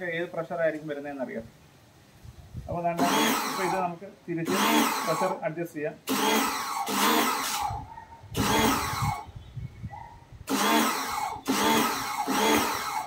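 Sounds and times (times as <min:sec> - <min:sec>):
pressure washer motor bursts: 0:03.0 - 0:05.4, 0:06.0 - 0:07.8, 0:08.4 - 0:09.2, 0:10.5 - 0:13.0.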